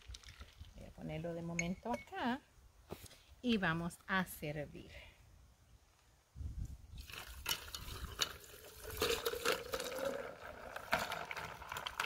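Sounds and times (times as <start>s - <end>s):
liquid pouring onto ice: 0.0s - 0.7s, 7.0s - 12.0s
ice cubes clicking: 7.1s - 12.0s.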